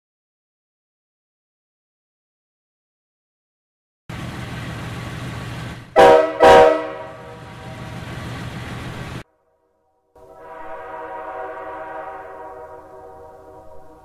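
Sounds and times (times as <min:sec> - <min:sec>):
air compressor running: 0:04.1 - 0:09.2
locomotive horn blasts: 0:05.9 - 0:08.1, 0:10.2 - 0:14.0.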